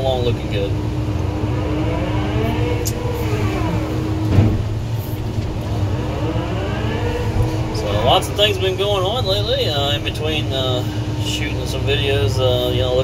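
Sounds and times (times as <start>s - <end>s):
diesel engine running: 0.0s - 13.0s
hydraulic whine: 0.8s - 12.1s.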